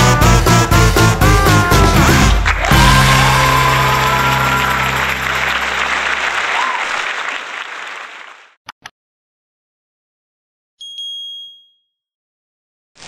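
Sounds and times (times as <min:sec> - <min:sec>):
applause: 0:02.1 - 0:08.6.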